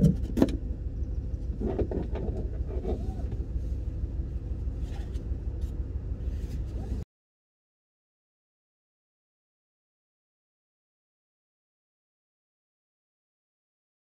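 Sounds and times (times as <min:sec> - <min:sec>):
car engine hum inside cabin: 0:00.0 - 0:07.0.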